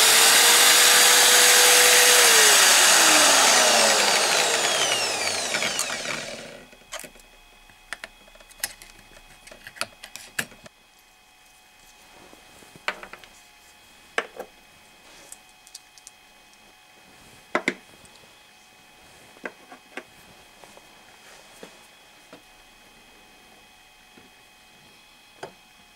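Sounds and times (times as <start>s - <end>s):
drill press motor spinning down: 0.0s - 6.8s.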